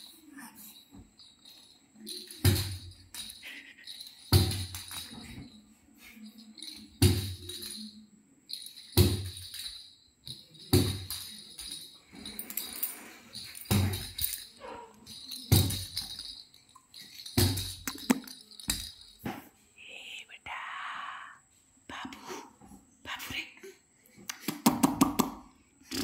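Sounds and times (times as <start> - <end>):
jingle ball bells jangling: 0.0 - 19.3.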